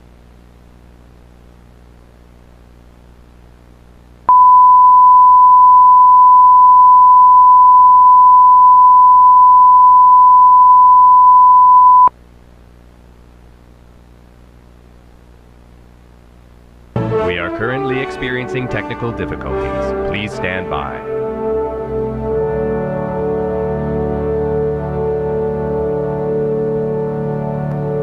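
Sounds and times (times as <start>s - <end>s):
faint low hum and hiss: 0.0s - 8.9s, 11.8s - 17.0s
loud pure test tone: 4.3s - 12.1s.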